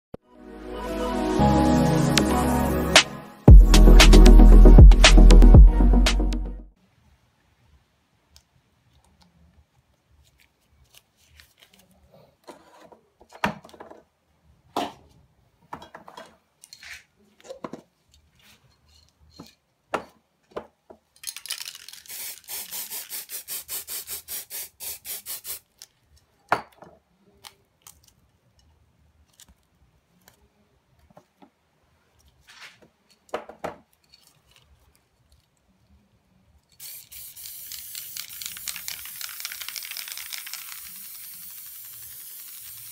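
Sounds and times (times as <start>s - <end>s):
spray paint can hissing: 3.0s - 5.6s, 21.5s - 25.7s, 36.8s - 42.9s.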